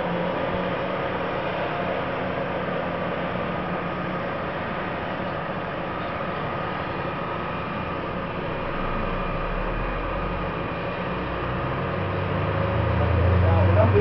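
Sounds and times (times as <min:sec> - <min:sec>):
truck mechanical drone: 0:00.0 - 0:14.0
deep low hum: 0:07.8 - 0:14.0.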